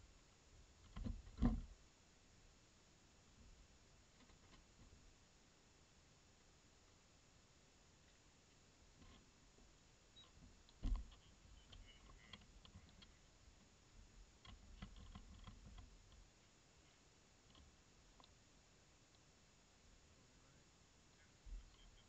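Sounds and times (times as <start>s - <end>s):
dull thump: 0.9s - 1.7s, 10.8s - 11.2s
faint clicks: 17.4s - 18.4s, 19.1s - 19.3s.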